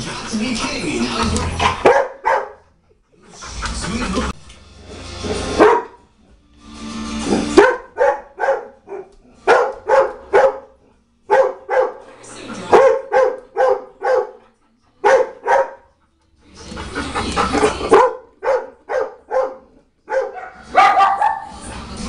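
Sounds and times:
dog barking: 0:01.8 - 0:02.6, 0:05.6 - 0:06.0, 0:07.5 - 0:12.0, 0:12.7 - 0:14.4, 0:15.0 - 0:15.9, 0:17.9 - 0:21.5.

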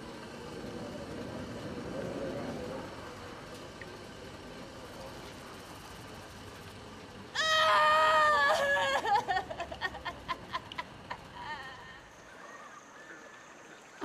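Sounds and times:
woman wailing: 0:07.4 - 0:09.4
woman sobbing: 0:11.2 - 0:12.2.

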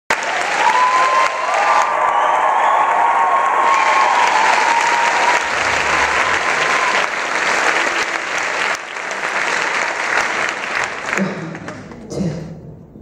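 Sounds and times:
audience applauding: 0:00.1 - 0:12.0.

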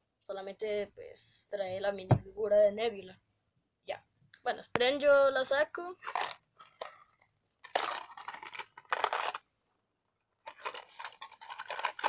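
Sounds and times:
packaging tearing and crinkling: 0:06.0 - 0:07.0, 0:07.6 - 0:09.5, 0:10.4 - 0:12.0.

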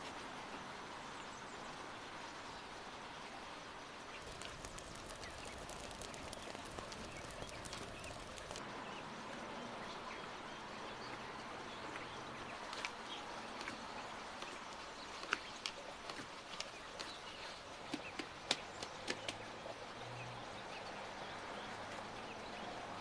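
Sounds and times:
outdoor background hiss: 0:00.0 - 0:23.0
hands kneading dough: 0:04.2 - 0:08.6.

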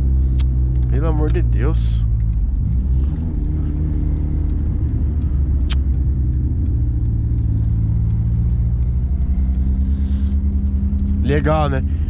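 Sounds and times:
car exhaust drone: 0:00.0 - 0:12.0
road noise: 0:00.0 - 0:12.0
sharp click: 0:00.3 - 0:01.4, 0:02.0 - 0:11.4.

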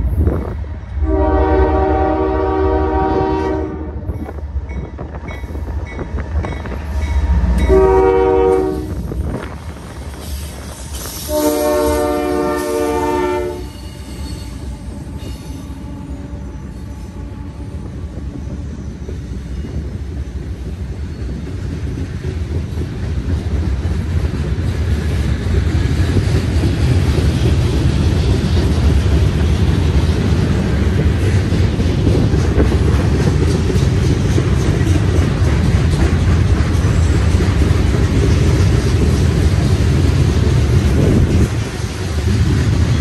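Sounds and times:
train rumbling: 0:00.0 - 0:43.0
locomotive air horn chord: 0:01.0 - 0:04.1, 0:07.7 - 0:09.0, 0:11.2 - 0:13.8.

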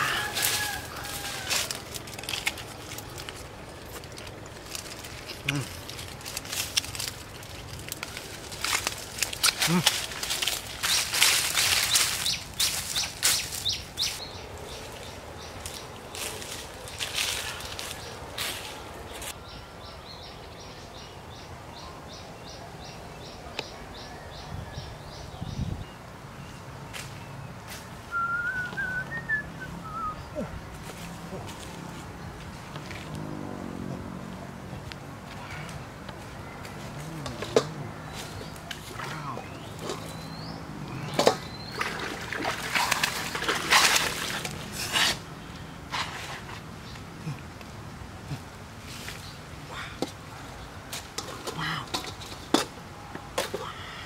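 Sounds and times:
hoe scraping leafy ground: 0:00.0 - 0:19.4, 0:35.4 - 0:47.0
outdoor background noise: 0:00.0 - 0:54.0
hands splashing water in bucket: 0:41.2 - 0:44.5.

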